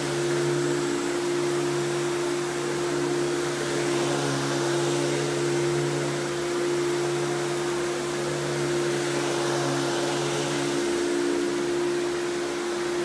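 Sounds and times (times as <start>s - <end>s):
vacuum cleaner motor hum: 0.0s - 13.0s.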